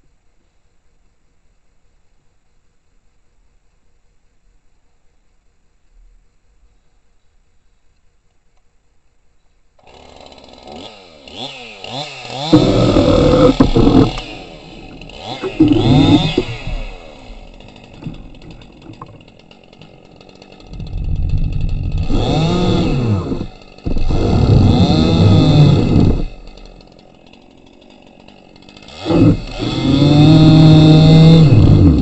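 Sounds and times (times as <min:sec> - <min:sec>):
chainsaw revving and idling: 0:09.8 - 0:32.0.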